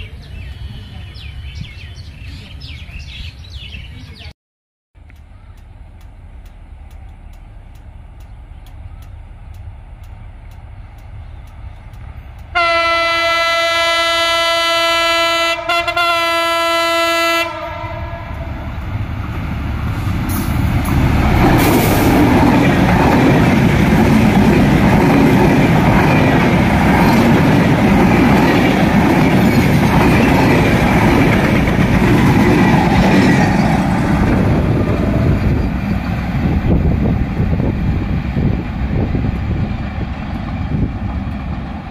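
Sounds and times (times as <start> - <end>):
train rumbling past: 5.0 - 41.9
locomotive air horn blast: 12.5 - 18.7.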